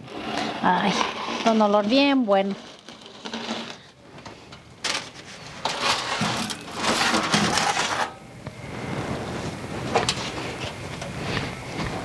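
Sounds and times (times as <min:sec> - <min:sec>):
clay pot scraping: 0:00.0 - 0:08.2
aluminium foil crinkling: 0:00.1 - 0:08.2.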